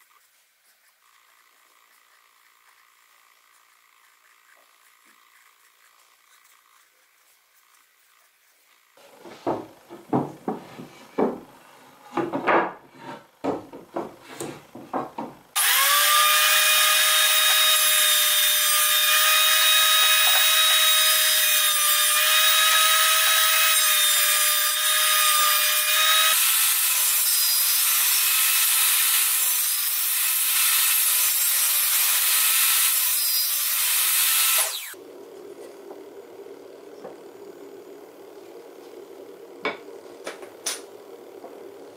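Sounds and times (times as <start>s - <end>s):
scraping strokes: 0.0s - 9.6s
planer cutting board: 0.0s - 35.0s
thickness planer whining: 9.0s - 41.9s.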